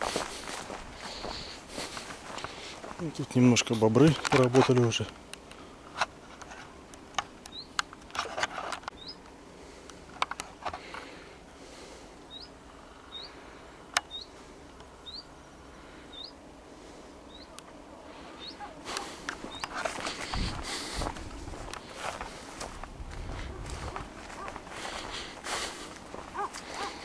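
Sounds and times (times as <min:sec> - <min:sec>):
grass rustling underfoot: 0:00.0 - 0:12.8, 0:16.6 - 0:27.0
bird chirping: 0:07.4 - 0:07.8, 0:08.9 - 0:09.2, 0:12.3 - 0:13.4, 0:14.0 - 0:14.4, 0:15.0 - 0:15.4, 0:16.1 - 0:16.4, 0:17.2 - 0:19.8.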